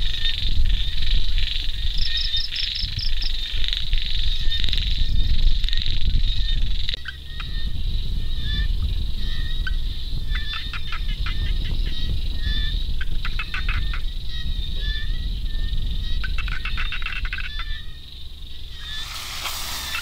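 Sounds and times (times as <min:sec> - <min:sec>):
frogs calling: 0:00.0 - 0:20.0
quick pulsed frog calls: 0:00.0 - 0:20.0
low rumble: 0:02.8 - 0:13.2.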